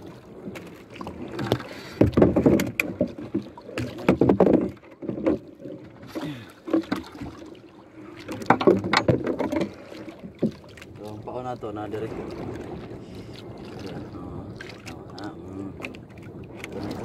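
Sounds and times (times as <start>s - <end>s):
water splashing against boat: 0.0s - 17.0s
paddle and gear knocking: 0.5s - 7.4s, 8.2s - 12.9s.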